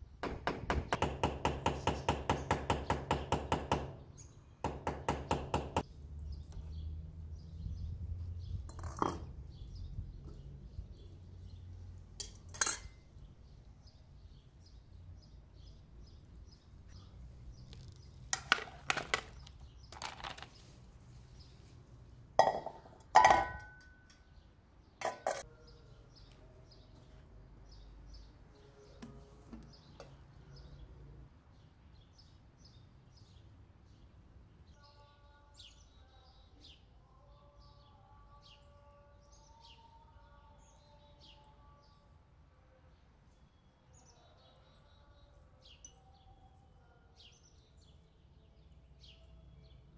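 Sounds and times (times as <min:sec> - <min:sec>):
metal pots and lids clinking: 0:12.2 - 0:13.1, 0:22.4 - 0:24.2, 0:25.0 - 0:25.5.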